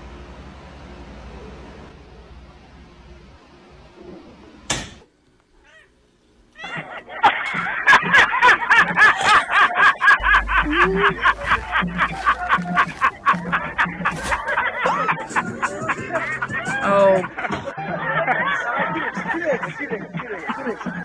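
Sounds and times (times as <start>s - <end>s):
sharp knock: 4.7s - 5.1s
rhythmic laughter bursts: 6.6s - 21.0s
music: 10.2s - 20.7s.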